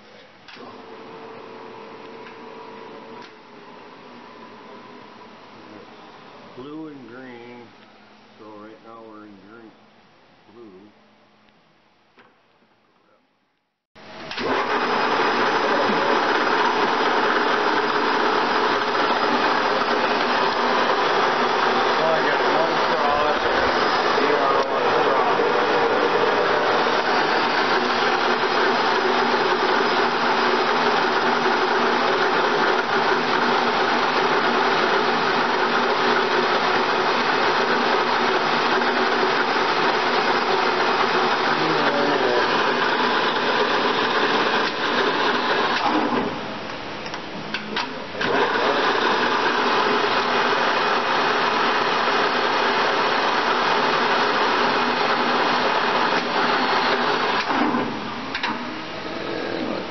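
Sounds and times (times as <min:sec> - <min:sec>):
lathe running: 0:14.0 - 0:46.7, 0:47.9 - 0:59.9.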